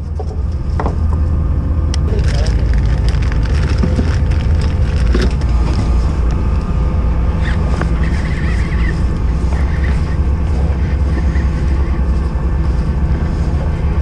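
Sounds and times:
boat engine droning: 0.0 - 14.0.

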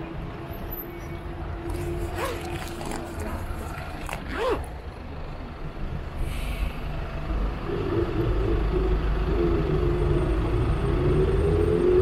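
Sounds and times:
city road traffic: 0.0 - 12.0
heavy vehicle humming: 0.0 - 12.0
motorcycle low rumble: 6.8 - 12.0.

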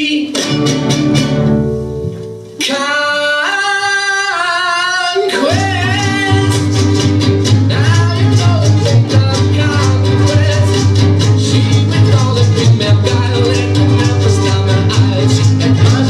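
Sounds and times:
rhythmic percussion: 0.2 - 2.8, 5.5 - 16.0
bass line: 5.5 - 16.0.

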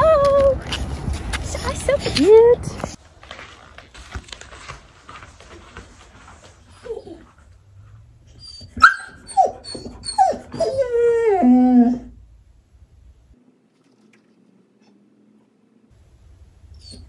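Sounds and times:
puppy yelping and whining: 8.3 - 12.1, 16.8 - 17.0.

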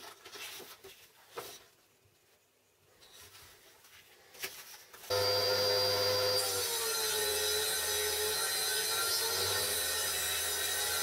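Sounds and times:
table saw cutting board: 5.1 - 11.0.

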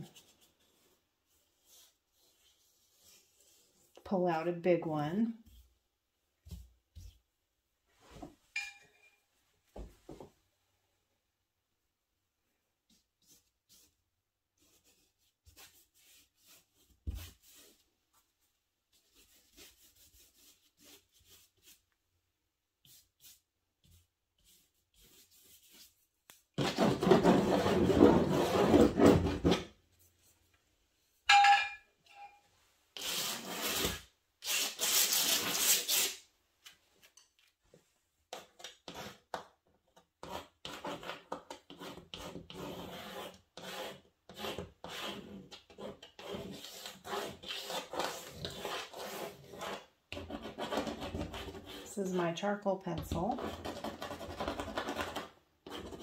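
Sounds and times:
tools scrubbing on textured paper: 14.6 - 17.9, 18.9 - 21.9, 22.8 - 26.1, 33.0 - 36.3, 40.2 - 52.0.

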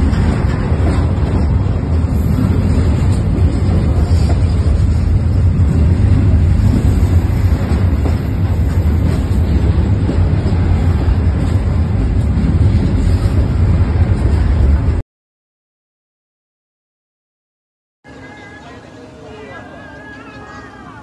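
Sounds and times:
freight train wheels rumbling on rails: 0.0 - 15.0.

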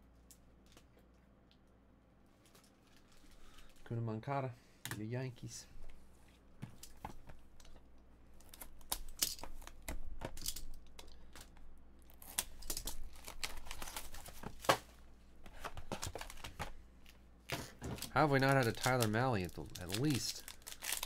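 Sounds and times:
packaging ripping and crinkling: 12.1 - 14.8, 18.0 - 21.0
cards being handled: 18.0 - 21.0.

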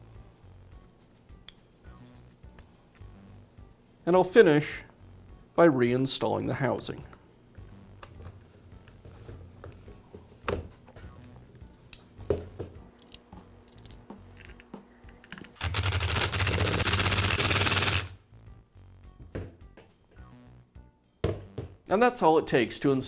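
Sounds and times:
power tool motor running: 15.6 - 18.1.

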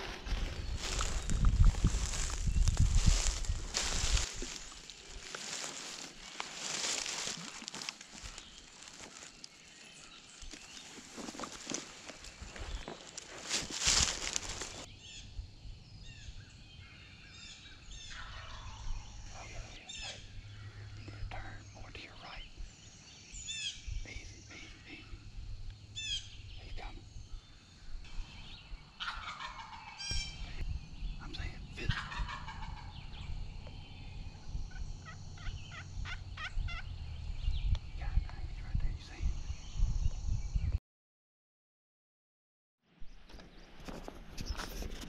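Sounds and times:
steady low rumble: 0.0 - 9.0, 18.5 - 29.0, 30.2 - 40.8
songbirds chirping: 0.0 - 40.8
turkey gobbling: 18.1 - 18.8, 29.0 - 30.3, 31.9 - 33.0, 35.0 - 36.8.

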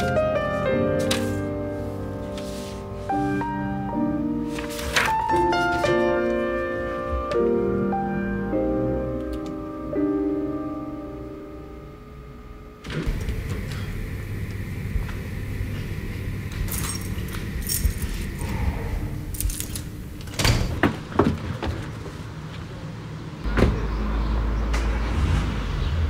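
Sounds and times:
soft piano music: 0.0 - 15.1
keys jangling at a door lock: 16.6 - 18.4, 19.3 - 20.6.

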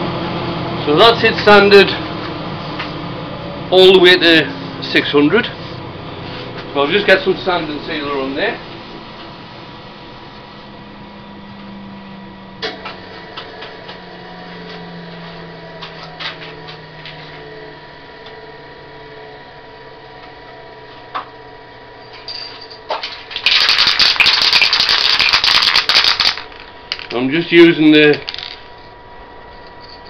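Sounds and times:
lathe motor humming: 0.0 - 22.0
loud rapid rattling: 23.4 - 27.1.

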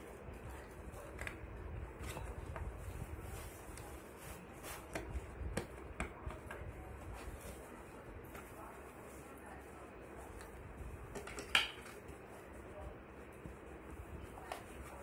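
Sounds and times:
cloth rustling: 1.9 - 5.5.

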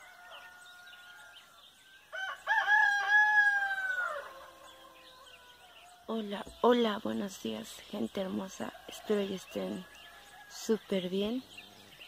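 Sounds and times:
rooster crowing: 0.0 - 6.0
small birds chirping faintly: 0.0 - 12.0.

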